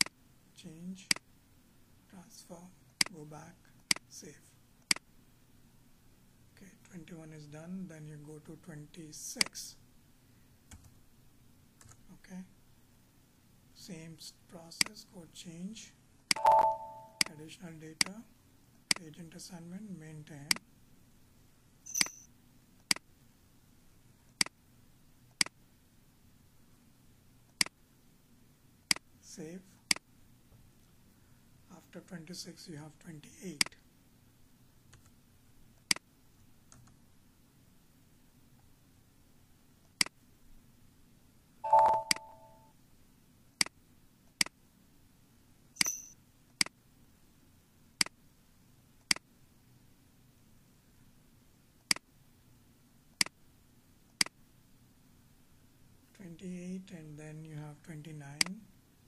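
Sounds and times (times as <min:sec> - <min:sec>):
faint room hum: 0:00.0 - 0:59.0
two-tone beep: 0:16.3 - 0:17.3, 0:41.7 - 0:42.6.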